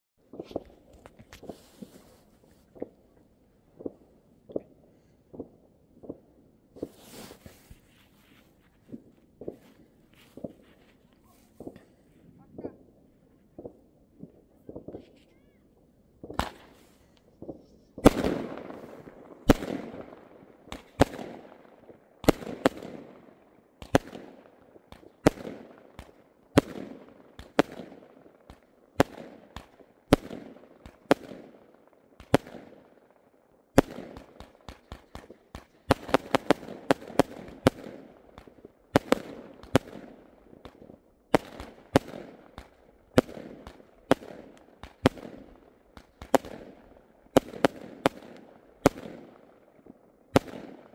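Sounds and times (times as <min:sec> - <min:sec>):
firework crackling: 0:00.3 - 0:03.1, 0:05.4 - 0:11.8, 0:16.2 - 0:23.1, 0:33.8 - 0:49.4
firework bangs with echo: 0:16.2 - 0:31.6, 0:33.8 - 0:49.5, 0:50.3 - 0:50.9.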